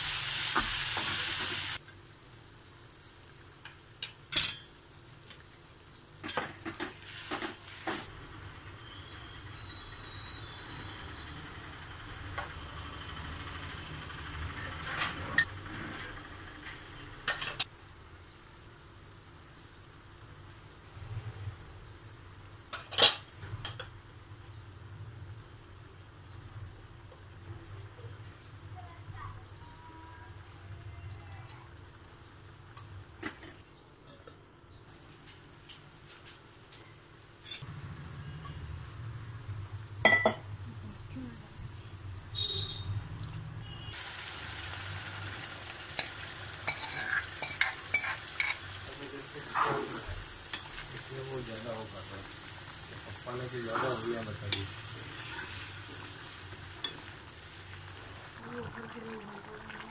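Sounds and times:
spices sizzling in a pan: 0:00.0 - 0:15.5, 0:16.3 - 0:33.8, 0:34.7 - 0:59.9
steel ladle clinking and scraping: 0:46.0 - 0:48.7.

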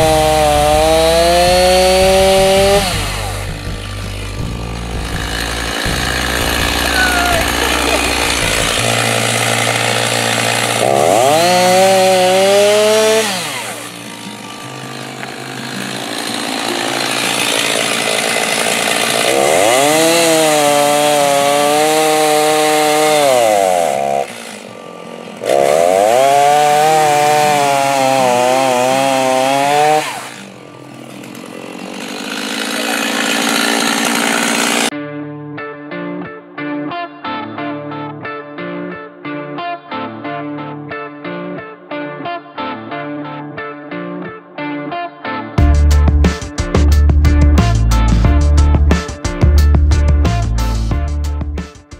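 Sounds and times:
chainsaw revving: 0:00.0 - 0:34.9.

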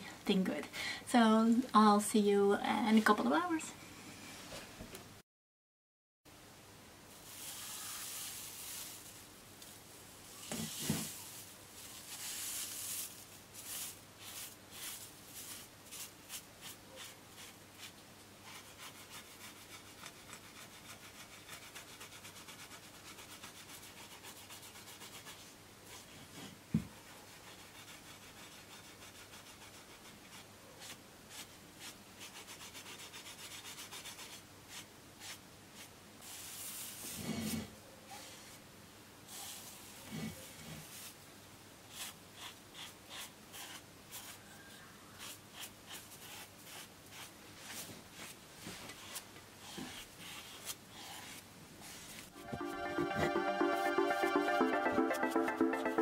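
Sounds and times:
sponge brush rubbing strokes: 0:07.1 - 0:09.3, 0:10.4 - 0:38.6, 0:39.3 - 0:41.2, 0:41.9 - 0:53.4.

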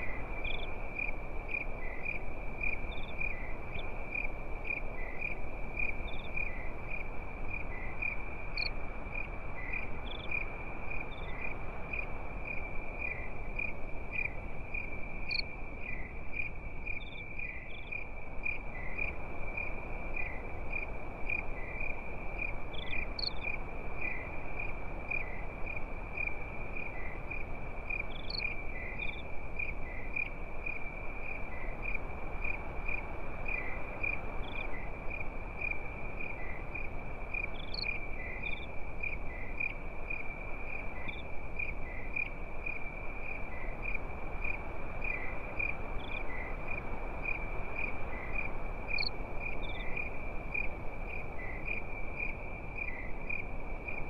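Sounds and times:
soft background hiss: 0:00.0 - 0:54.0.

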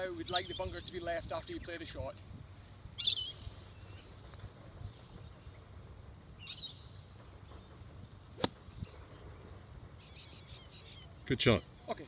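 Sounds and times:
birds chirping: 0:00.2 - 0:01.9, 0:03.0 - 0:12.0
golf club striking sand: 0:08.4 - 0:08.8.

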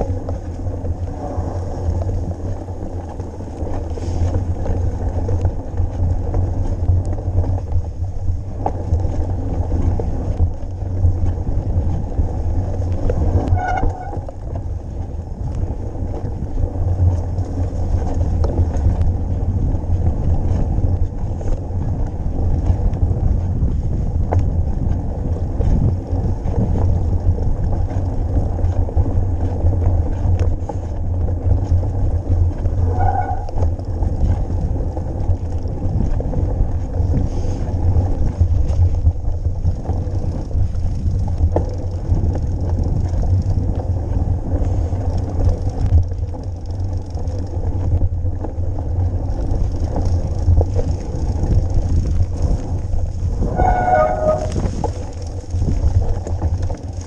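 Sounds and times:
trail and tyre noise: 0:00.0 - 0:57.0
wind buffeting microphone: 0:00.0 - 0:57.0
short pitched squeak: 0:53.5 - 0:54.6.

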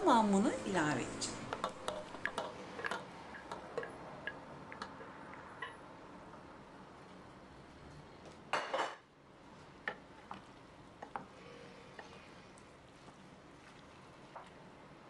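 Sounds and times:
wooden spoon stirring in pot: 0:00.1 - 0:05.7, 0:09.4 - 0:15.0.

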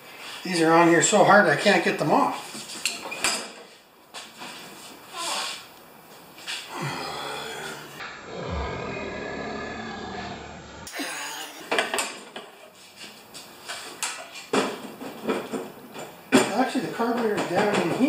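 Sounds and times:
man groaning: 0:06.7 - 0:11.7.

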